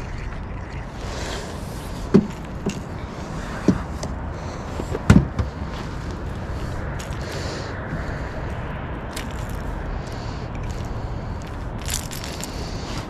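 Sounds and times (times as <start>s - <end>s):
knocks inside a boat: 5.1s - 5.6s.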